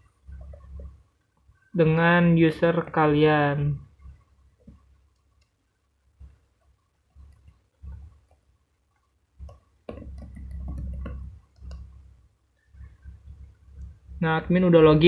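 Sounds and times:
laptop keys clicking: 7.2 - 12.0.

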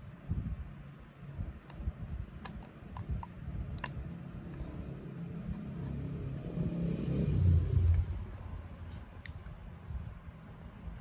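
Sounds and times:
plastic clicks and rubbing: 1.6 - 4.8
low rumble: 3.5 - 10.2.

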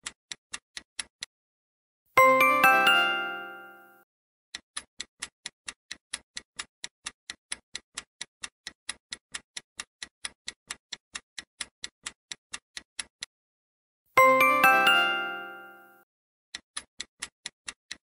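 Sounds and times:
clock ticking: 0.0 - 1.3, 4.5 - 13.3, 14.2 - 18.0.

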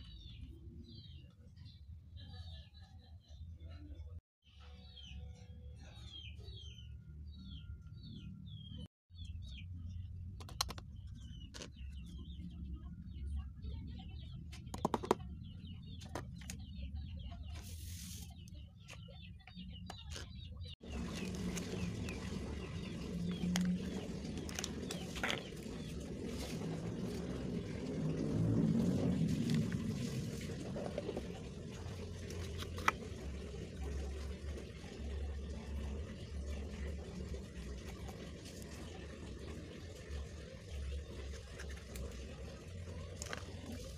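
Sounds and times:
small birds chirping: 4.7 - 28.0.

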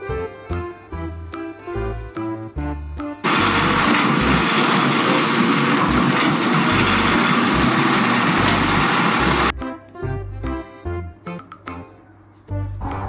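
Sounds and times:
light background music: 0.0 - 13.0
garbage truck running: 3.2 - 9.5
hydraulic arm lifting bin: 3.2 - 9.5.

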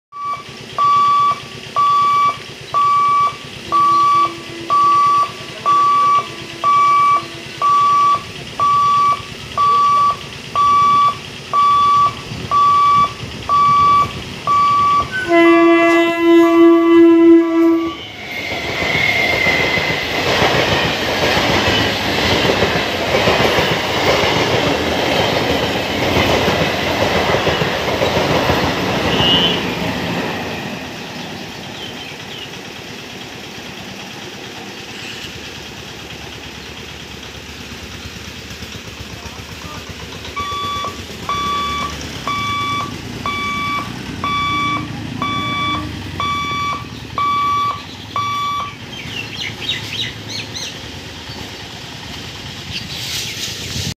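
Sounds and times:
level crossing alarm beeping: 0.1 - 15.8, 40.3 - 48.9
train wheel and rail noise: 0.2 - 53.9
train horn: 3.7 - 7.8, 15.0 - 18.1, 29.0 - 29.8.

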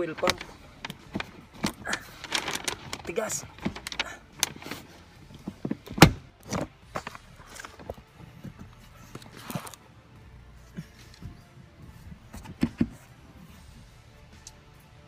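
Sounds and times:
car seat knocks and clicks: 5.4 - 7.1, 12.4 - 13.1.

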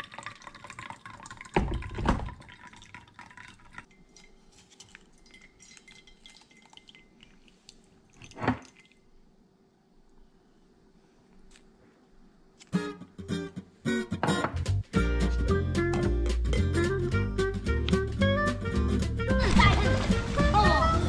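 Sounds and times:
coffee dripping into metal cup: 0.0 - 7.4.

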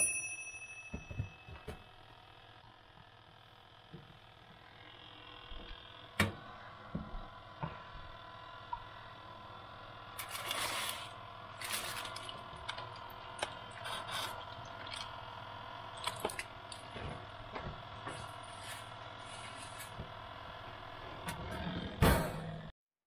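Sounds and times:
faint steady hum: 0.0 - 22.7
aluminium foil crinkling: 10.2 - 15.1.

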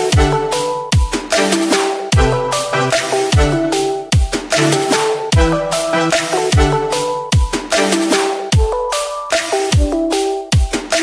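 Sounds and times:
deep kick drum hits: 2.2 - 2.5, 3.3 - 4.8
sustained synth melody: 2.2 - 7.3.

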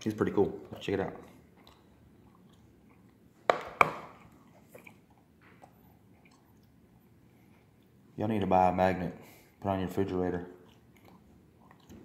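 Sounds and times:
magnet knocking on wooden table: 3.5 - 4.1.

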